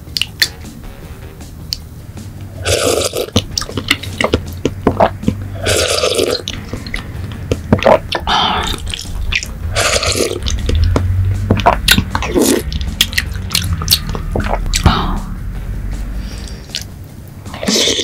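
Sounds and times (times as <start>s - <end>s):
wet mouth and spoon clicks: 0.1s - 0.5s, 10.2s - 14.6s, 16.7s - 16.9s
slurping liquid from a spoon: 2.6s - 7.0s, 7.7s - 10.8s, 11.5s - 14.6s, 17.6s - 18.0s.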